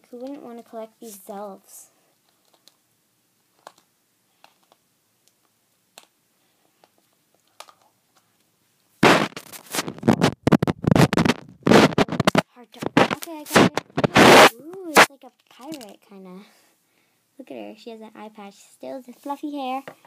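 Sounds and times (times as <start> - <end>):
foil wrapper crinkling: 9.2 - 15.9.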